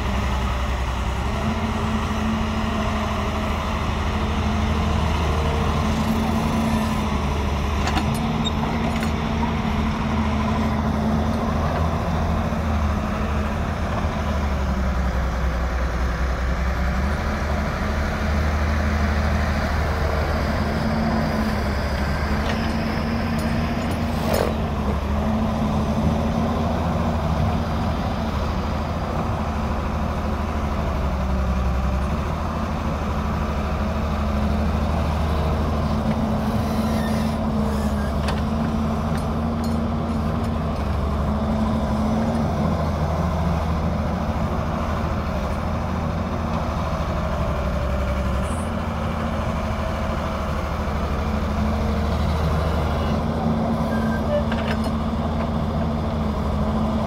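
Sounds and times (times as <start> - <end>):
excavator diesel engine: 0.0 - 57.0
tractor engine running: 0.0 - 57.0.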